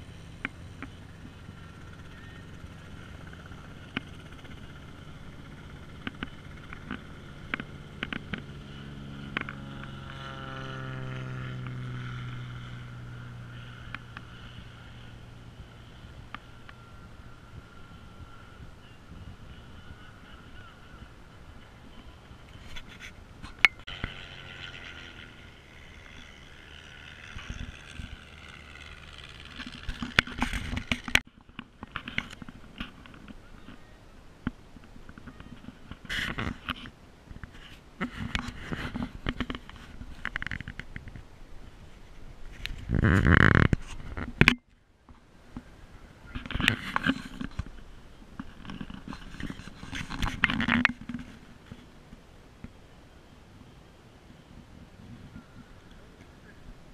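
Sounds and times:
engine passing by: 0.0 - 31.3
propeller aircraft droning: 0.0 - 56.9.

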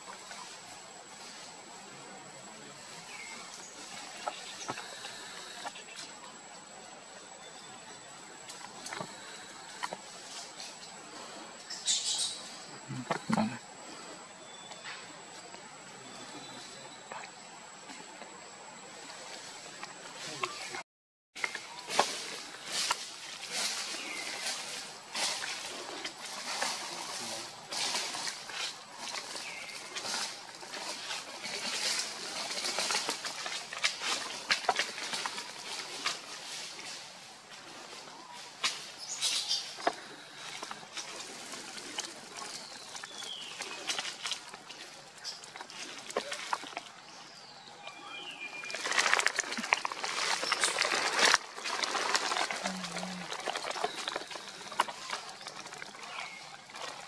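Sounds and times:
crackly rustling: 21.4 - 57.0.

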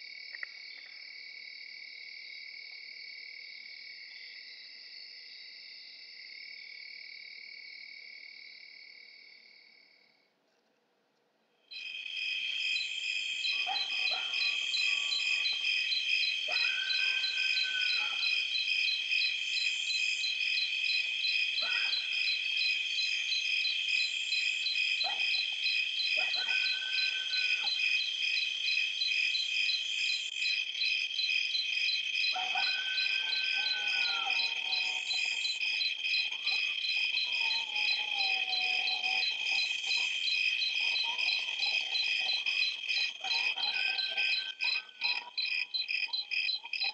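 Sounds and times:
insects trilling: 11.7 - 46.9.

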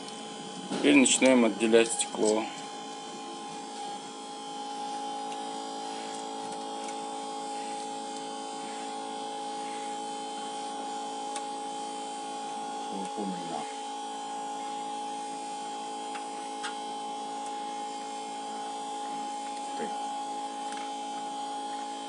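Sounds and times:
vacuum pump humming: 0.0 - 22.0.

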